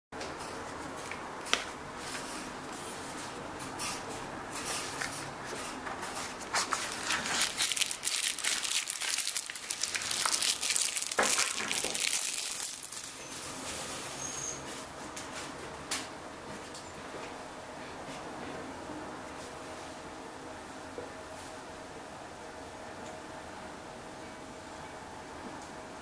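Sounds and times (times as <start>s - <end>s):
plastic wrap crinkling: 6.4s - 13.3s.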